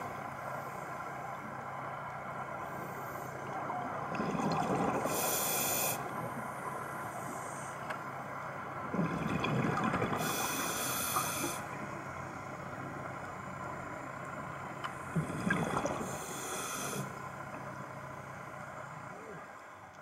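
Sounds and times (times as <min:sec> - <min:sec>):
scuba regulator breathing underwater: 0:05.0 - 0:06.1, 0:10.1 - 0:11.7, 0:16.0 - 0:17.2.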